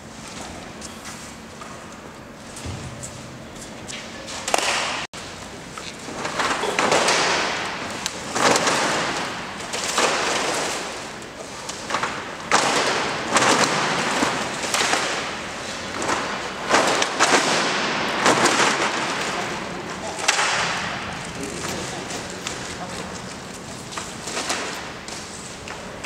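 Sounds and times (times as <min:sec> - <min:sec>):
roller shutter slats clattering: 0:06.0 - 0:25.3.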